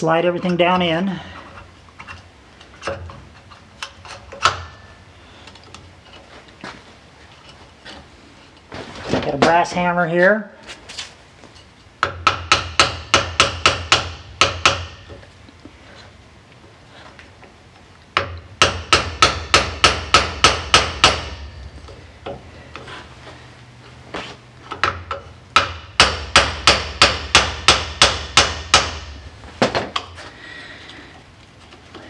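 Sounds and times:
hammer tapping metal: 0:12.0 - 0:15.3, 0:18.2 - 0:22.4.

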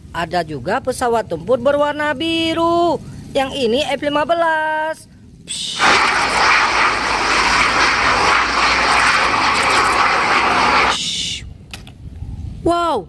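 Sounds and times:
jet engines rushing: 0:05.7 - 0:11.0.

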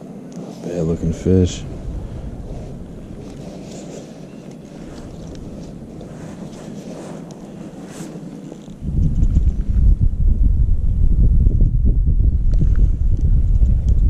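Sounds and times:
wind buffeting microphone: 0:00.0 - 0:14.0
faint rustles: 0:00.1 - 0:10.2.

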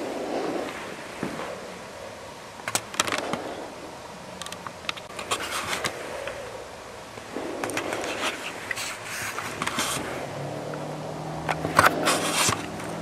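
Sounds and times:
respirator breathing: 0:00.0 - 0:04.4, 0:05.3 - 0:13.0.

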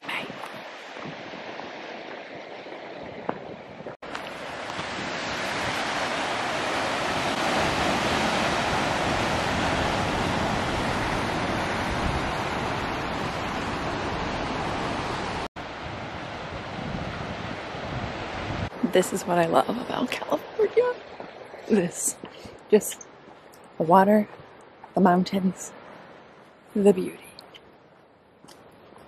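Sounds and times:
ocean surf washing over rocks: 0:04.0 - 0:21.9.

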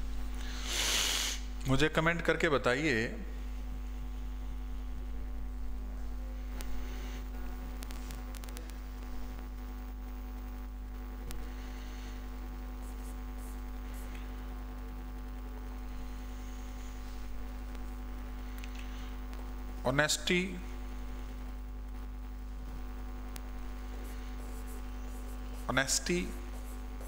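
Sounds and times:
electrical mains hum: 0:00.0 - 0:27.0
faint clicks: 0:18.5 - 0:19.5.

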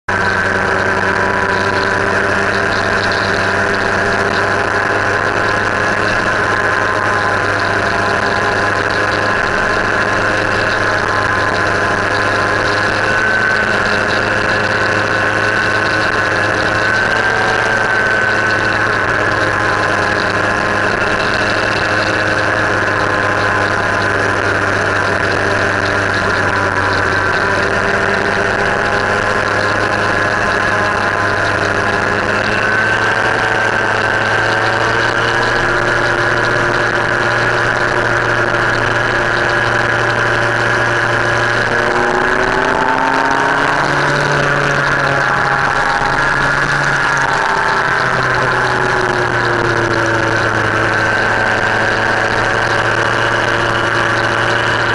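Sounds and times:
motorcycle engine cruising: 0:00.0 - 0:54.9
road noise: 0:00.0 - 0:54.9
wind noise: 0:00.1 - 0:54.9.

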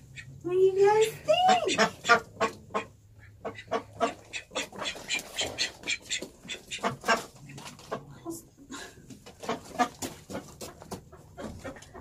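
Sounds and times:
ducks quacking: 0:00.0 - 0:08.1, 0:09.3 - 0:12.0.

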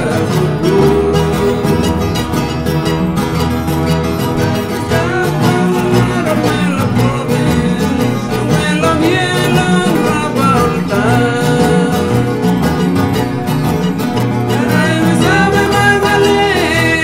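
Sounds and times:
plucked guitars string band music: 0:00.0 - 0:17.0.

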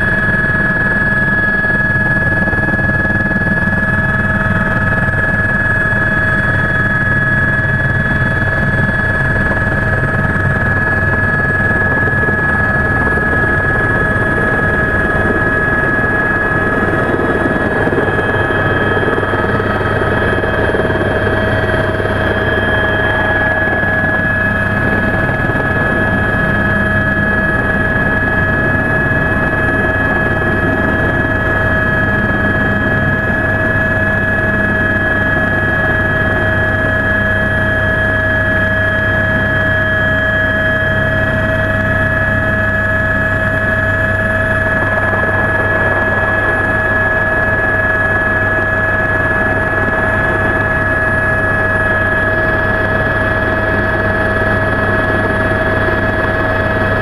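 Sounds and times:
helicopter cabin rotor drone and whine: 0:00.0 - 0:57.0.

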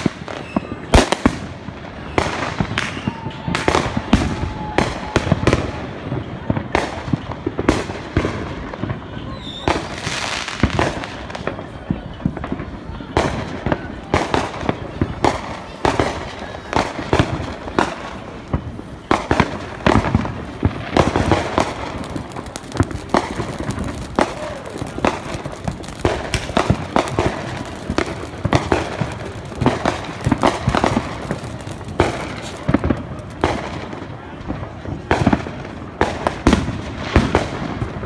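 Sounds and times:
firecrackers popping: 0:00.0 - 0:38.0
fountain firework hissing: 0:07.9 - 0:36.3.

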